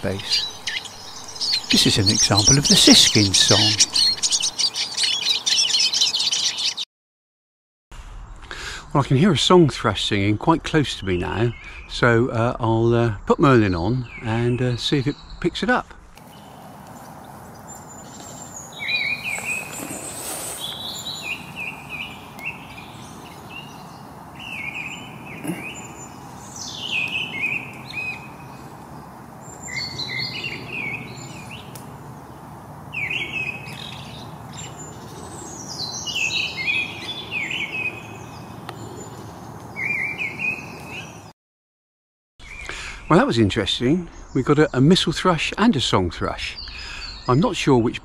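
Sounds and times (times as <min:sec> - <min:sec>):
faint twittering of woodland birds: 0:00.0 - 0:06.8, 0:11.0 - 0:12.0, 0:13.6 - 0:41.3, 0:42.4 - 0:48.0
thrushes singing: 0:00.0 - 0:06.8, 0:13.5 - 0:41.3.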